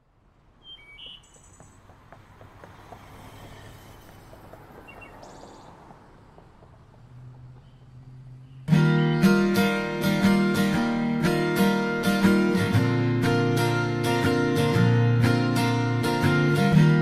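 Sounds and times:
distant background hiss: 0.2s - 12.8s
short bird chirps: 0.6s - 1.8s, 4.8s - 5.7s.

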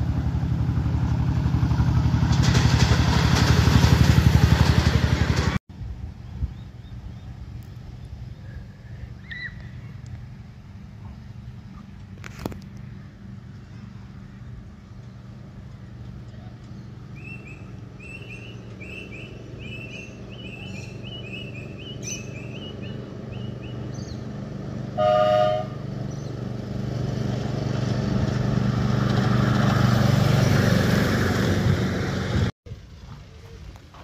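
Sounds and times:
locomotive and wheels rumbling: 0.0s - 34.0s
miniature train horn toot: 25.0s - 25.9s.

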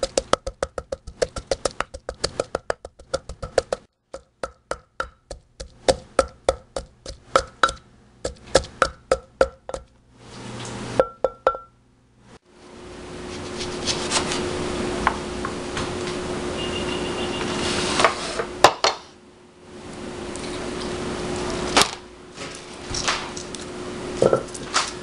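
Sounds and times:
pestle pounding in stone mortar: 0.0s - 9.9s.

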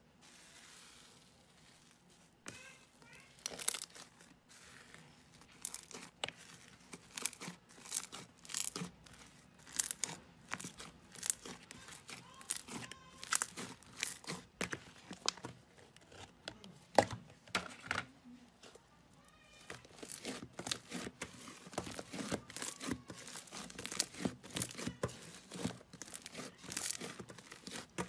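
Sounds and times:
slime squishing and popping: 5.5s - 15.4s, 19.9s - 28.0s.

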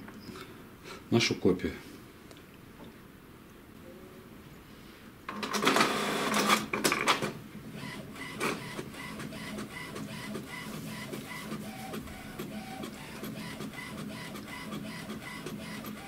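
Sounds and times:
printer whirring and clatter: 5.3s - 16.0s
printer motor hum: 5.5s - 6.7s, 7.7s - 16.0s.

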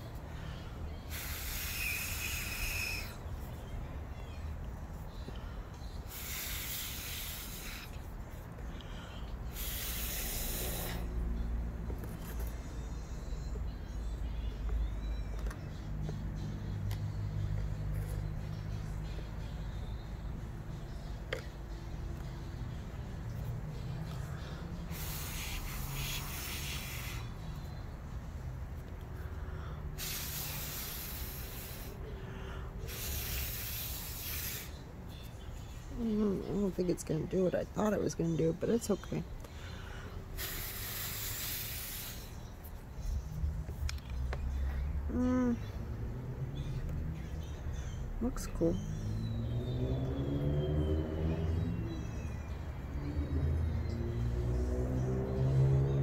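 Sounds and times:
hissing rushing bursts: 1.1s - 3.2s, 6.1s - 8.0s, 9.5s - 11.2s, 24.9s - 27.4s, 30.0s - 32.0s, 32.8s - 34.8s, 40.4s - 42.4s.

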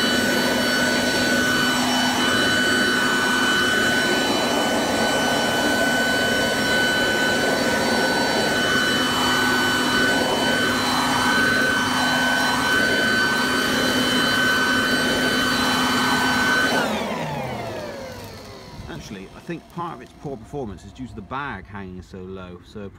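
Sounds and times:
air rushing: 0.0s - 17.0s
leaf vacuum motor whine: 0.0s - 22.9s.

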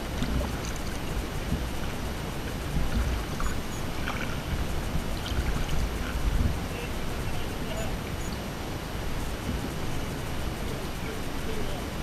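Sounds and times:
kayak paddle splashes: 0.0s - 8.2s
lapping lake water: 0.0s - 12.0s
wind noise on microphone: 0.0s - 12.0s.

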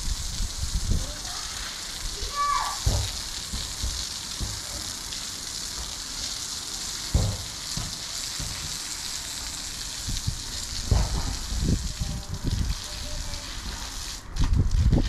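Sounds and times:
hose water spraying on concrete: 0.0s - 15.0s
dull low thump: 2.8s - 4.8s, 7.1s - 8.8s, 10.8s - 12.2s.

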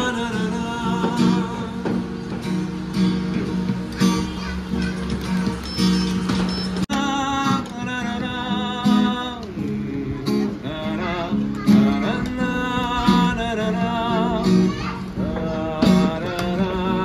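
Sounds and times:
person singing: 0.0s - 2.4s, 6.9s - 17.0s
acoustic guitar strumming: 0.0s - 17.0s.

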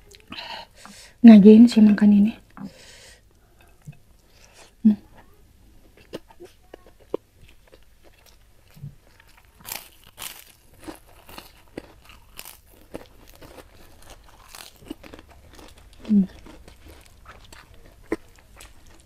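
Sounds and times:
crunchy cracker chewing: 6.0s - 19.0s.

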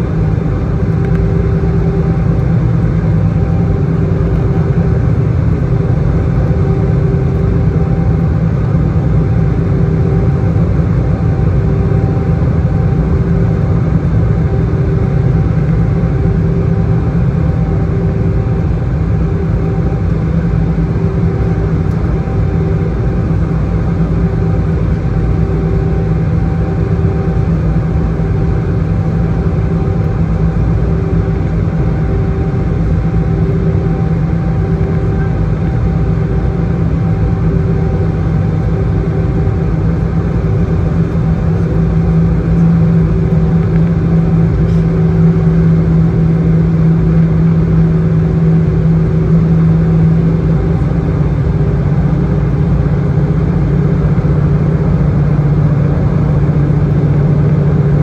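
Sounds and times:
airplane cabin engine noise: 0.0s - 58.0s
pulsing mid-pitched hum: 0.0s - 58.0s.

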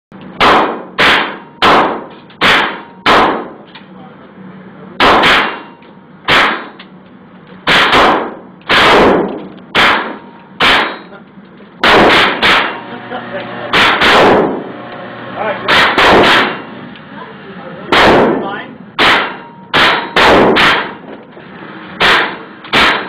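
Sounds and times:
rifle shots echoing: 0.4s - 3.6s, 5.0s - 6.8s, 7.7s - 11.1s, 11.8s - 12.8s, 13.7s - 14.6s, 15.7s - 16.6s, 17.9s - 18.4s, 19.0s - 21.0s, 22.0s - 23.0s.

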